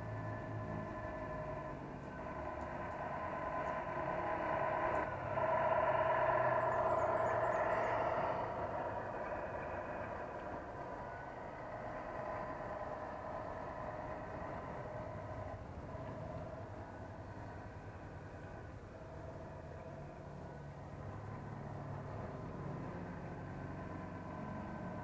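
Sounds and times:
toy truck driving by humming: 0:00.0 - 0:25.0.

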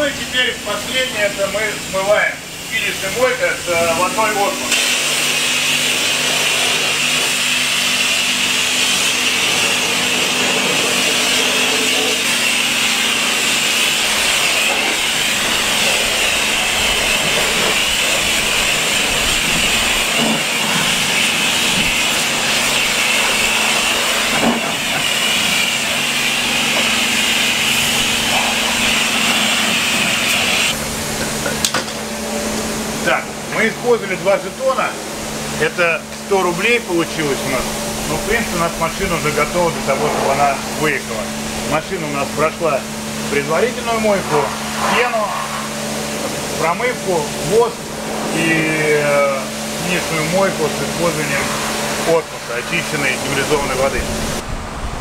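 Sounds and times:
high-pressure water spraying on car: 0:00.0 - 0:55.0
steady low hum: 0:08.5 - 0:55.0.

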